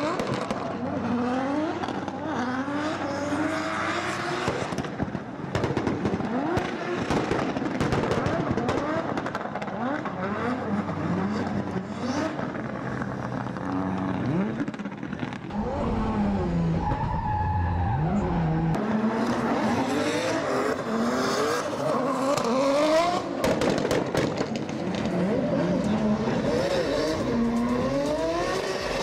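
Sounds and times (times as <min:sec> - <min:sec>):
car engines revving: 0:00.0 - 0:29.0
sharp cracks: 0:23.2 - 0:25.2.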